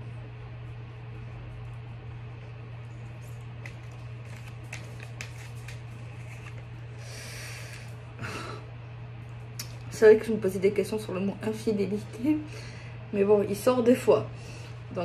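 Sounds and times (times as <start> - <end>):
steady low hum: 0.0 - 15.0
cards being shuffled: 3.2 - 6.8.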